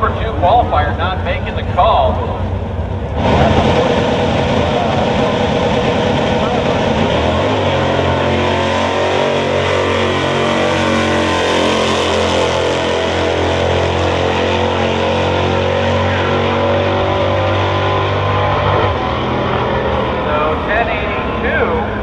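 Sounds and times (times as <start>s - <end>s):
drag car engine at full throttle: 0.0s - 22.0s.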